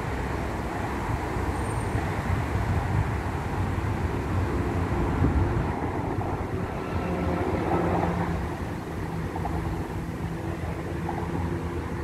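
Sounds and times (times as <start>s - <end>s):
motorway traffic rumble: 0.0s - 12.0s.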